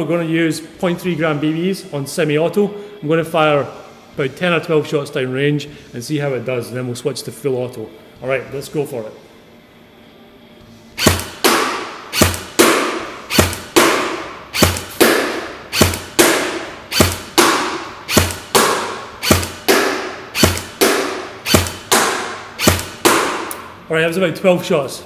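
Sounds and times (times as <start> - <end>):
airsoft rifle shots: 11.0 - 23.5
pellet hitting paper target: 11.0 - 23.5.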